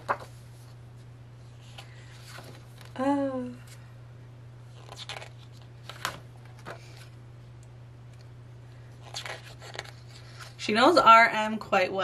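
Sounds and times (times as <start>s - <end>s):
paper pages rustling: 0.0s - 0.8s, 1.5s - 3.0s, 4.7s - 7.2s, 9.0s - 10.6s
steady low hum: 0.0s - 12.0s.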